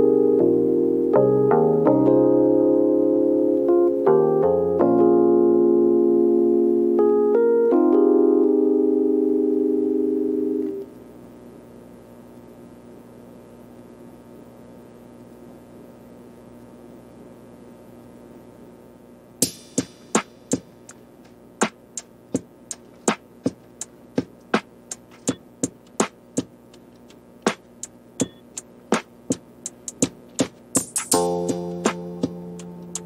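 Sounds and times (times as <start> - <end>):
background music: 0.0 - 10.8, 29.7 - 33.0
faint steady hum: 0.0 - 33.0
sharp percussive beats: 19.4 - 33.0.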